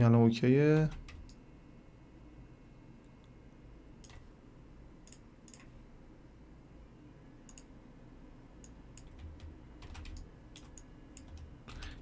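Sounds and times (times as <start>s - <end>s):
low room hum: 0.0s - 12.0s
computer mouse clicks: 4.0s - 4.3s, 5.0s - 5.8s, 7.5s - 7.7s, 8.6s - 12.0s.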